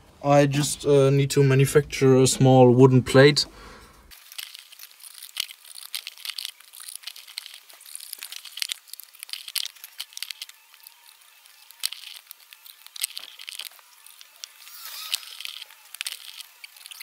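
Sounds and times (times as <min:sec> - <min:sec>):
cardboard crinkling and scraping: 0:04.1 - 0:17.0.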